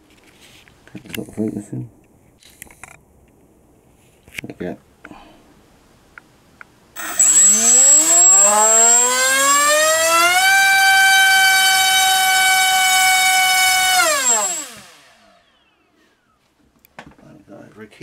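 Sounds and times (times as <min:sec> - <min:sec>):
drone motor spinning propeller: 0:07.0 - 0:15.4.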